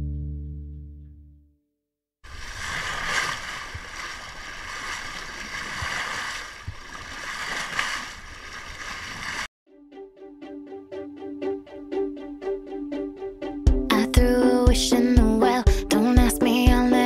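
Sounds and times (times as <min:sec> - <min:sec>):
water splashing against hull: 0:02.3 - 0:09.5.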